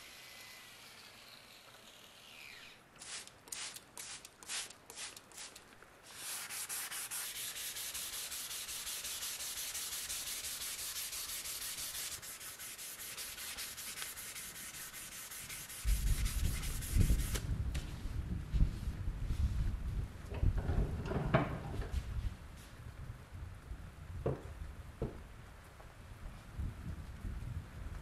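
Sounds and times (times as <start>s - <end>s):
sandpaper rubbing on metal: 0.4s - 17.4s.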